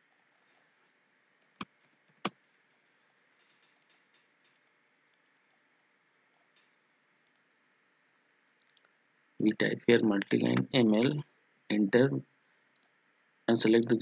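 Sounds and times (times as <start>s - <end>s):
mouse clicks: 3.8s - 5.6s
keyboard clicking: 13.6s - 14.0s.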